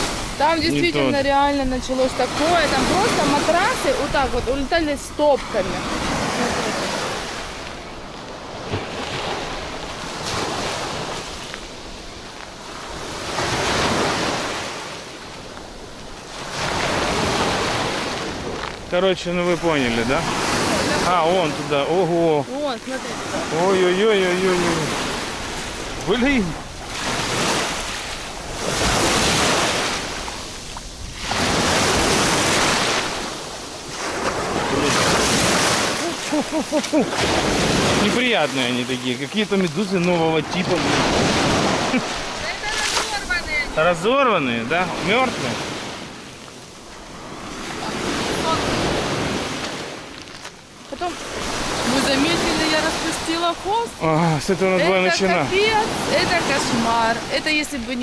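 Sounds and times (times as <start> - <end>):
wind buffeting microphone: 0.0 - 38.5
waves breaking on beach: 0.0 - 58.0.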